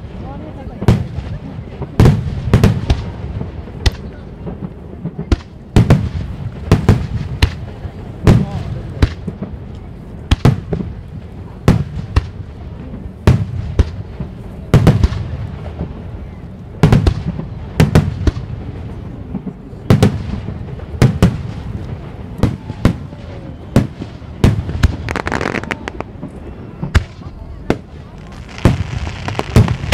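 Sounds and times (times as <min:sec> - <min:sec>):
continuous low rumble: 0:00.0 - 0:29.9
firework shells bursting: 0:23.8 - 0:26.3.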